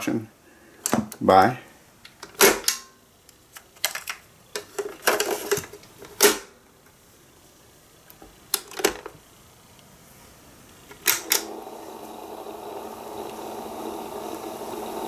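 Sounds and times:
plastic clacks of cassette player: 0:03.6 - 0:06.5, 0:10.9 - 0:11.5.

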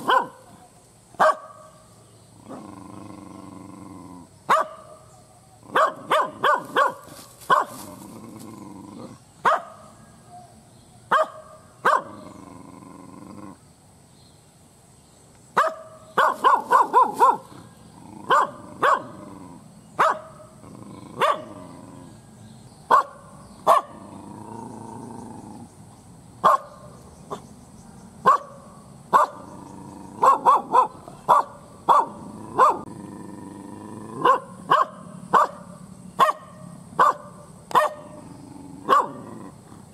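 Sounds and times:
dog barking angrily: 0:00.0 - 0:00.5, 0:01.2 - 0:01.7, 0:04.5 - 0:05.0, 0:05.7 - 0:07.9, 0:09.4 - 0:09.9, 0:11.1 - 0:12.2, 0:15.6 - 0:21.8, 0:22.9 - 0:24.1, 0:26.4 - 0:26.9, 0:28.2 - 0:32.9, 0:34.1 - 0:38.2, 0:38.8 - 0:39.5.

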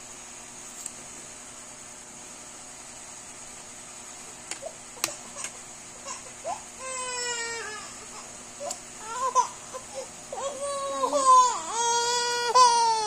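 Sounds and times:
child humming: 0:08.6 - 0:13.0.

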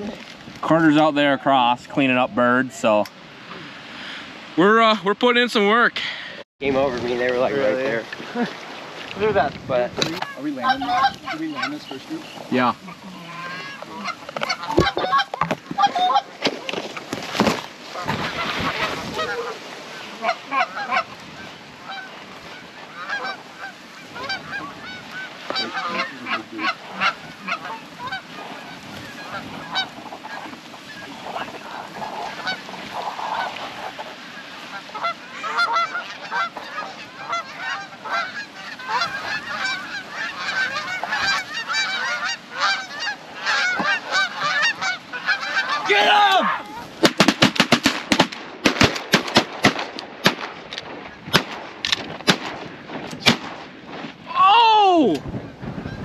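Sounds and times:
geese honking and clucking: 0:10.0 - 0:53.5, 0:55.3 - 0:56.0
shotgun blasts: 0:47.0 - 0:54.0.

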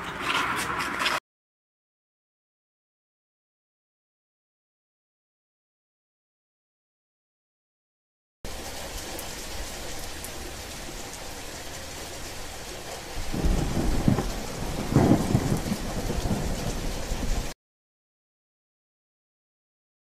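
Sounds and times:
rolling thunder rumble: 0:08.5 - 0:17.6
steady rain falling: 0:08.5 - 0:17.6.

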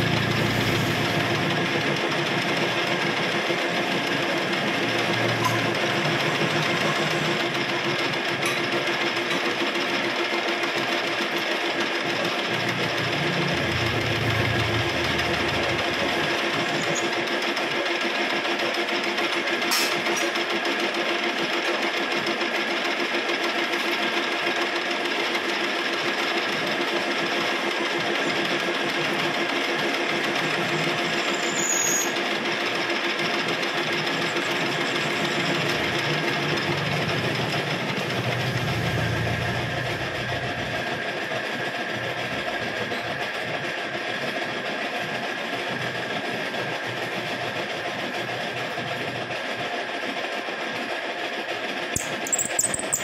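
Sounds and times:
lathe winding down: 0:00.0 - 0:09.8, 0:10.7 - 0:17.3, 0:27.3 - 0:41.0
metal lathe running: 0:00.0 - 0:43.6, 0:51.6 - 0:53.0.

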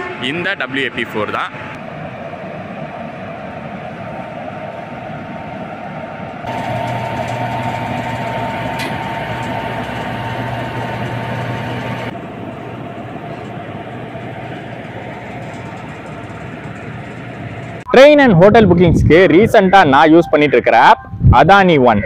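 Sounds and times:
electric locomotive humming: 0:00.0 - 0:17.9
high whine: 0:01.8 - 0:21.5.

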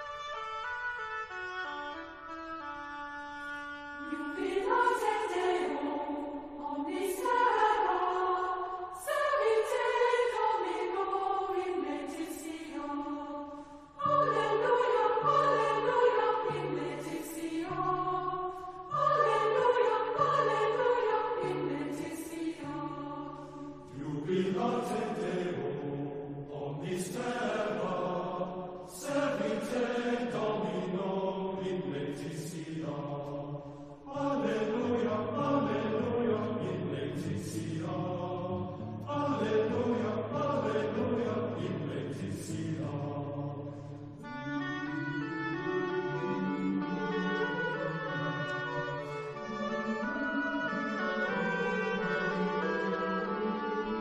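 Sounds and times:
instrumental music: 0:00.0 - 0:24.0, 0:43.7 - 0:54.0
choir chanting: 0:04.0 - 0:54.0.

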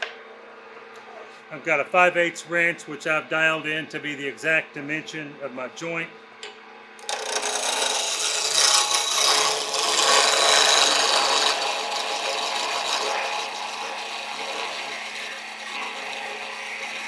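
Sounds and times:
lathe humming: 0:00.0 - 0:17.0
turning tool scraping wood: 0:07.0 - 0:17.0.

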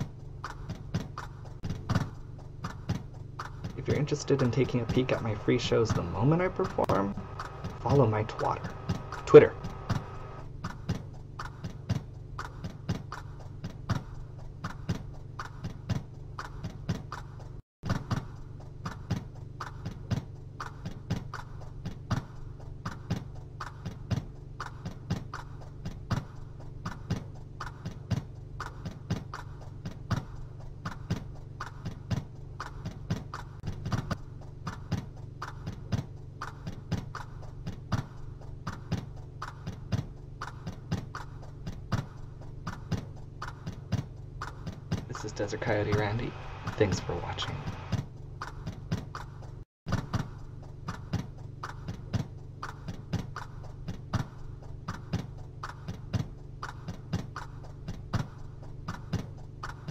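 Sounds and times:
steady regular ticking: 0:00.1 - 0:17.6, 0:18.3 - 0:49.6
low steady hum: 0:01.8 - 0:10.6, 0:45.1 - 0:48.3.

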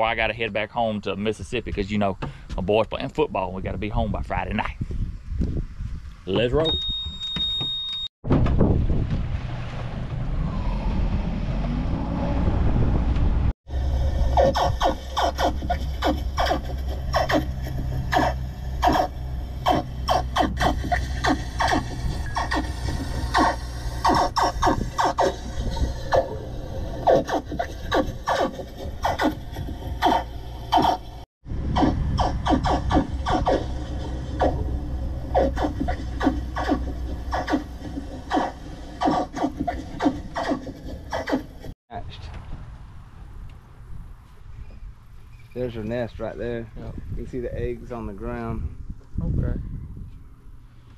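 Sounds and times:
boat motor hum: 0:09.3 - 0:40.3
short scraping swishes: 0:31.8 - 0:41.7.

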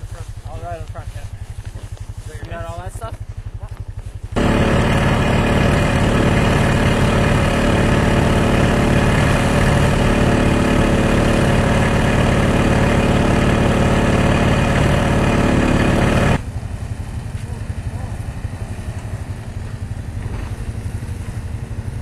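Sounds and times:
atv engine running: 0:00.0 - 0:22.0.

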